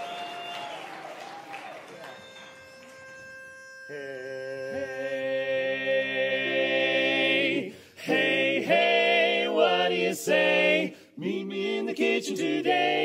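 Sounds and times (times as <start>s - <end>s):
male quartet singing a cappella: 3.9s - 13.0s.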